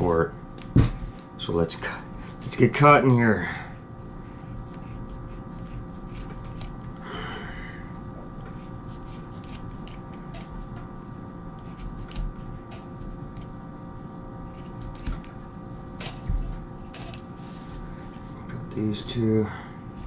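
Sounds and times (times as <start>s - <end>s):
scissors snipping cord: 4.7s - 7.0s, 8.5s - 10.6s, 11.6s - 13.6s, 14.5s - 15.4s.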